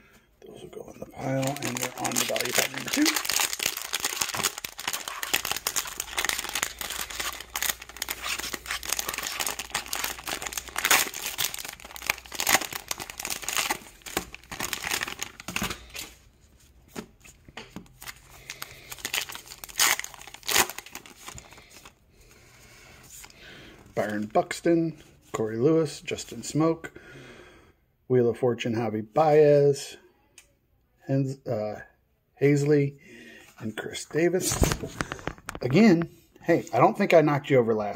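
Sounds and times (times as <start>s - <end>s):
wrappers crinkling and tearing: 1.2s - 16.1s, 18.0s - 22.0s.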